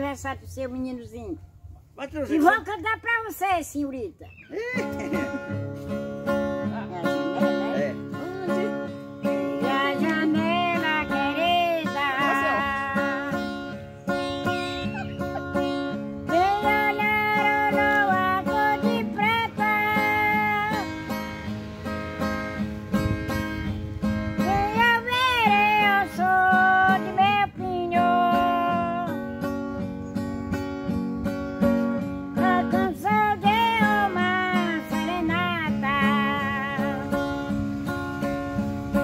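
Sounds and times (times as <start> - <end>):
strummed acoustic guitar: 4.5 - 39.0
elderly woman singing: 8.2 - 13.8, 14.4 - 21.2, 24.4 - 29.4, 32.0 - 38.0.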